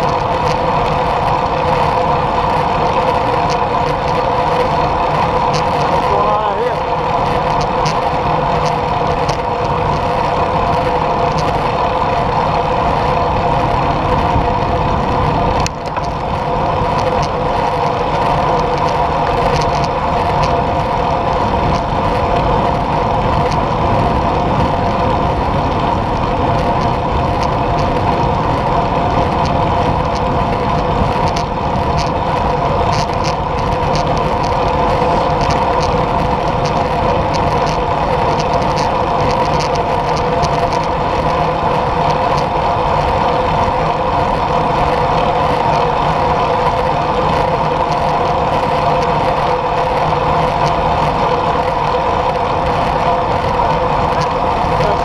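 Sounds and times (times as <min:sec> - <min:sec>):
bicycle tyres rolling on asphalt: 0:00.0 - 0:55.0
steady hum: 0:00.0 - 0:55.0
wind on camera: 0:00.0 - 0:55.0
light ticks: 0:07.4 - 0:11.7.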